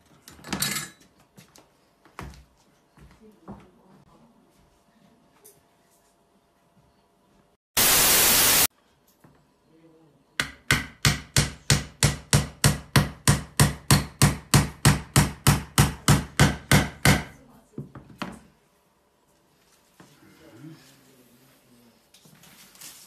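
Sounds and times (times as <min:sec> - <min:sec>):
loud hiss: 0:07.8 - 0:08.7.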